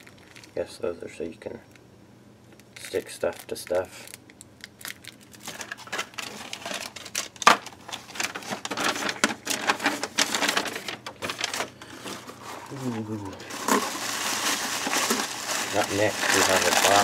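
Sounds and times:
plastic and cardboard rustling: 5.3 - 17.0.

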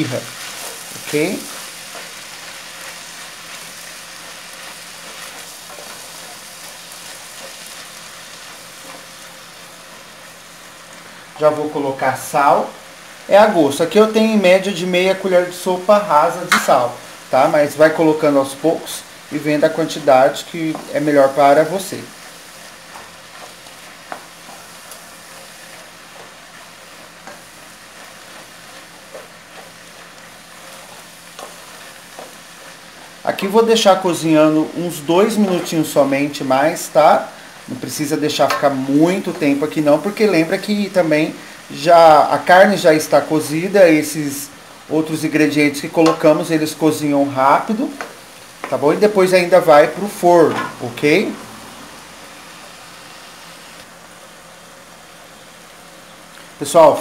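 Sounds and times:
wooden spoon stirring: 0.0 - 11.5, 19.4 - 37.4
meat sizzling in a pot: 0.0 - 57.0.

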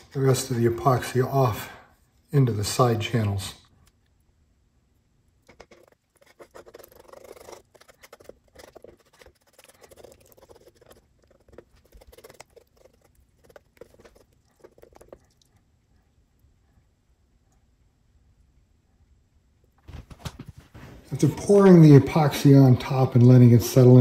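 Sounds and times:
stick scraping and tapping epoxy: 5.4 - 15.2.

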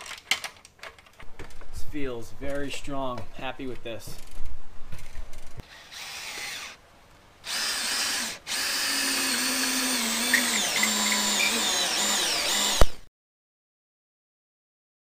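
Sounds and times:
cordless drill driving bolt: 7.5 - 13.0.

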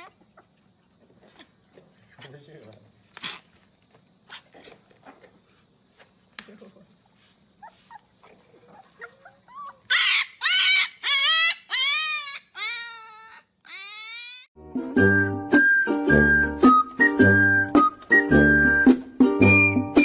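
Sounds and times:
puppy howling: 8.2 - 14.5.

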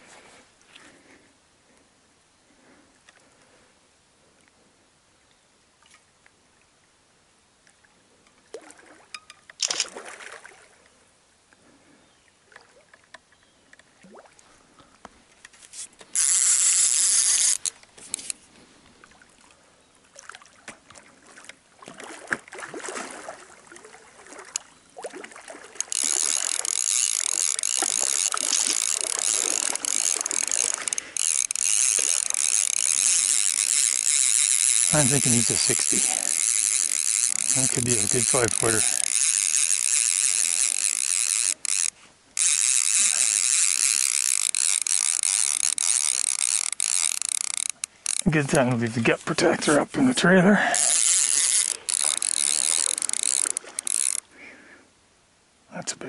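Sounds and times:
fishing reel ratcheting: 16.0 - 18.4, 25.8 - 48.9, 50.6 - 54.3.

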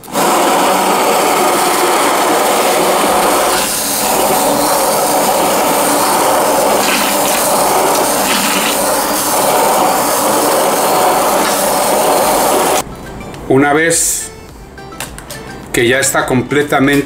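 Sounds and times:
immersion blender running: 0.0 - 12.8.

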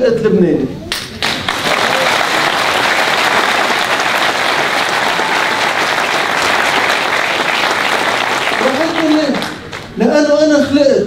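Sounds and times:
audience applauding: 1.1 - 10.0
person giving a speech: 8.6 - 11.0.

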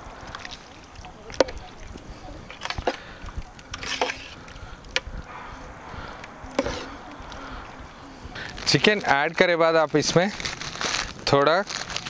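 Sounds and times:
ladle scraping a steel pot: 3.7 - 4.5, 6.6 - 7.0.

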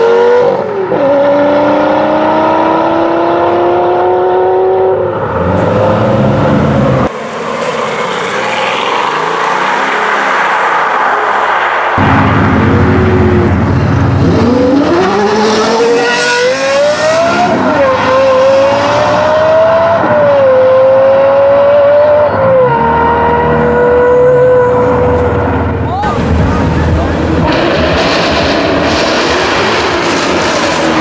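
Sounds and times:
sports car accelerating hard: 0.0 - 11.0, 12.0 - 31.0
car engine rushing pulling off: 12.0 - 20.0, 23.2 - 31.0.

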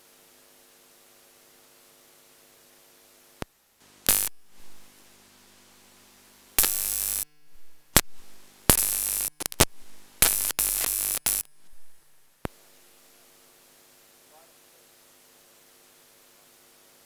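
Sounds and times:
faint steady hum: 0.0 - 17.0
harsh static bursts: 4.0 - 5.8, 6.6 - 13.2.

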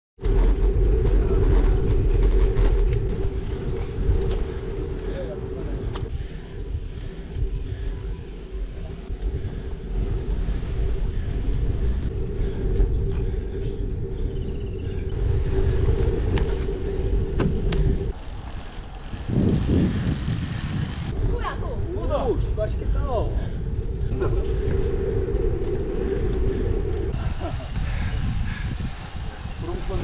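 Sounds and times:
wind buffeting microphone: 0.2 - 30.0.

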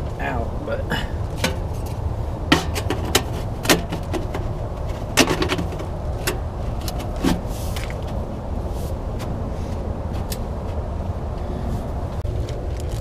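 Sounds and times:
sheet metal clanking and scraping: 1.3 - 7.5
sharp knocks on metal: 2.5 - 4.4.

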